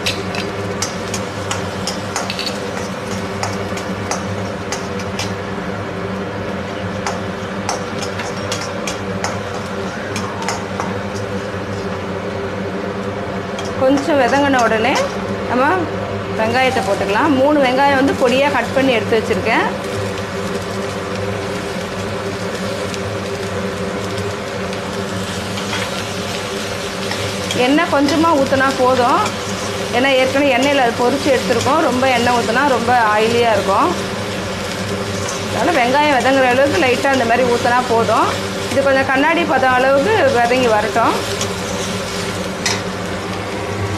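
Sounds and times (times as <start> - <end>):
garlic sizzling in hot oil: 0.0 - 12.0, 16.4 - 43.9
steady low hum: 0.0 - 43.9
spatula stirring in pan: 25.2 - 42.8.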